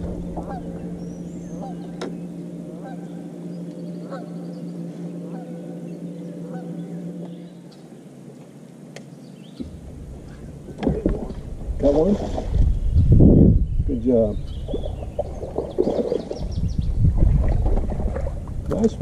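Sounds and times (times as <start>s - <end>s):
geese honking: 0.0s - 7.9s
steady low hum: 0.0s - 19.0s.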